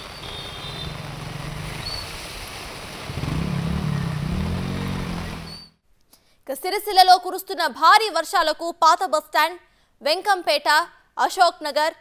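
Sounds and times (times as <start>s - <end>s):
floodwater rushing: 0.2s - 5.7s
motor engine running: 3.2s - 5.7s.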